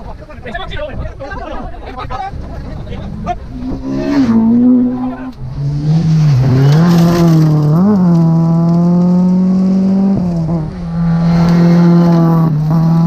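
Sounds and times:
rally car engine at high revs: 3.1 - 13.0.

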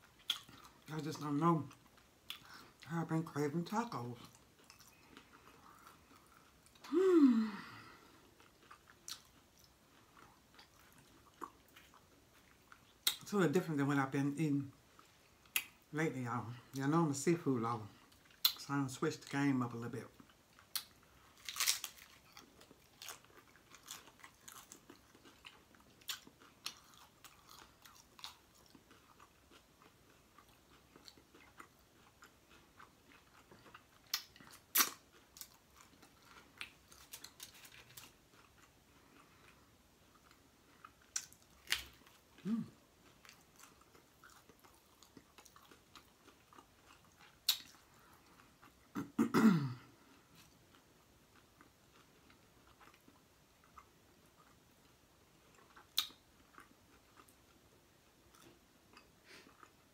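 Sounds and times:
low vocal sounds: 6.8 - 8.0
crunchy chewing and biting: 20.2 - 48.8.

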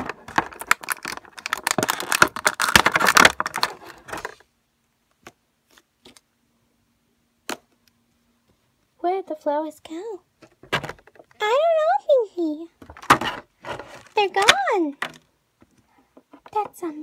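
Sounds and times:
plastic packaging crinkling: 0.0 - 4.4.

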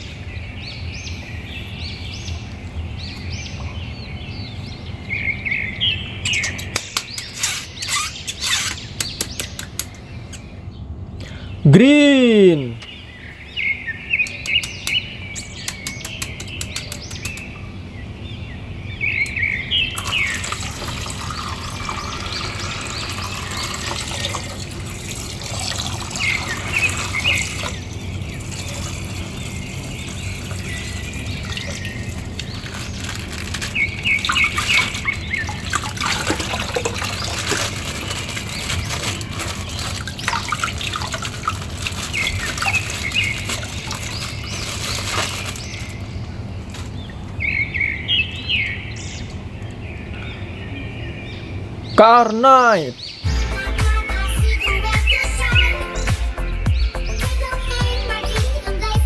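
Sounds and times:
birds chirping: 0.0 - 59.0
water splashing in a basin: 20.0 - 46.0
plastic bag crinkling: 20.0 - 47.0.

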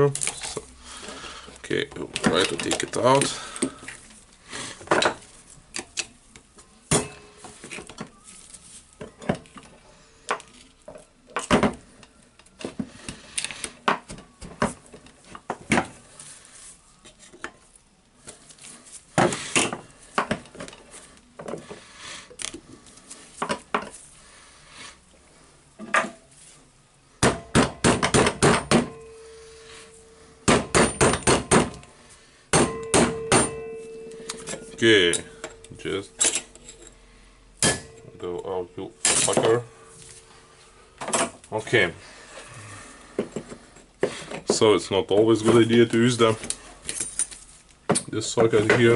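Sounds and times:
metal tools clinking on metal: 2.2 - 3.8, 32.7 - 37.0, 37.6 - 40.3.

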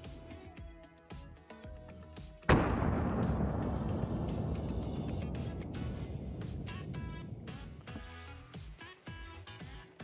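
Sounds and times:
background music: 0.0 - 10.0
loud rifle shot: 2.5 - 8.0.

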